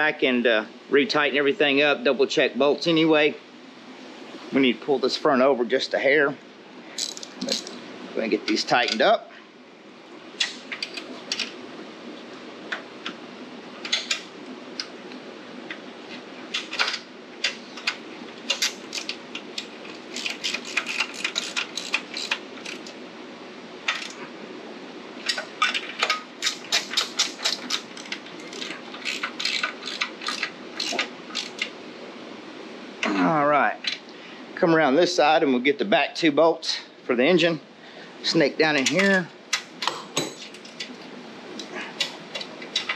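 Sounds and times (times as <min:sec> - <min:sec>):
wrench clicking on bolts: 0:16.5 - 0:23.0, 0:23.9 - 0:24.2, 0:25.3 - 0:31.7.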